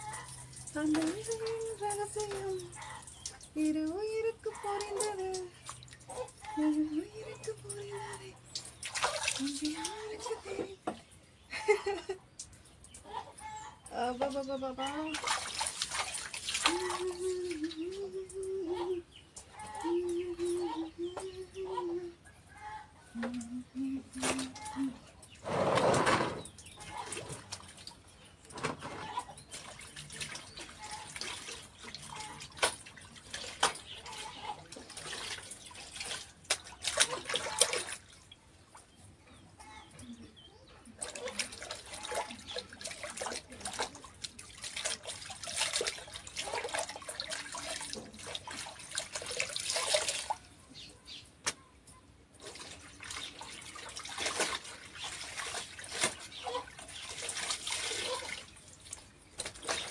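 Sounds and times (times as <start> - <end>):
water sloshing in tubs: 0.0 - 59.9.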